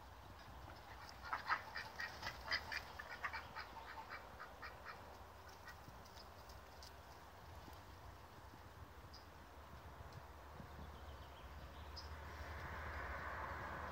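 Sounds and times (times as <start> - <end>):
ducks quacking: 0.7 - 5.9.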